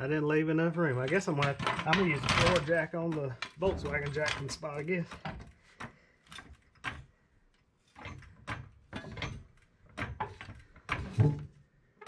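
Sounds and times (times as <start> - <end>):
scraping rattles: 0.8 - 7.2, 7.8 - 11.6
floor jack metal clunks: 1.1 - 5.5, 8.0 - 11.6.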